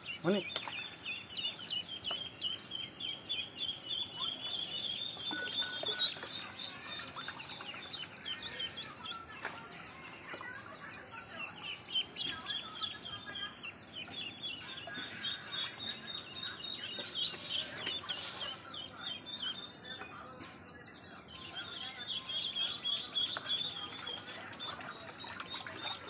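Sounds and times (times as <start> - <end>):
ducklings peeping: 0.1 - 20.2, 21.4 - 26.0
water splashing in plastic tub: 0.3 - 1.2, 5.2 - 11.4, 17.0 - 18.6, 23.0 - 26.0.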